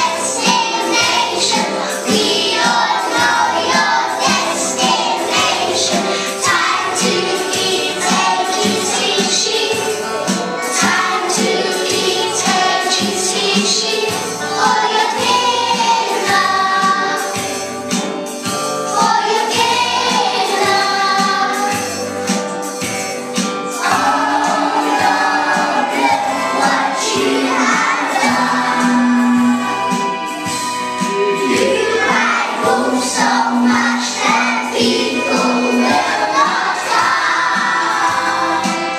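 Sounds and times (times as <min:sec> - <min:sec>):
children singing: 0:00.0 - 0:38.9
music with steady beat: 0:00.0 - 0:38.9.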